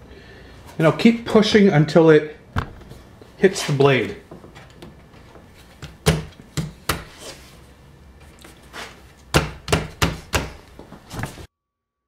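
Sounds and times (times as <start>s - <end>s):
palm knocking wooden plate: 9.4s - 10.6s.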